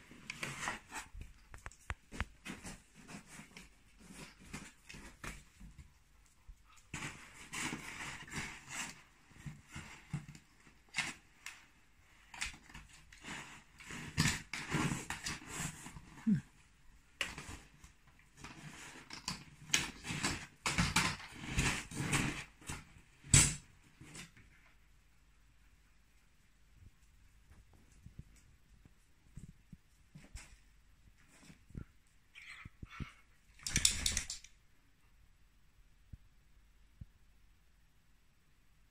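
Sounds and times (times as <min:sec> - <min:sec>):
claws clicking on tile: 0:33.5 - 0:34.6.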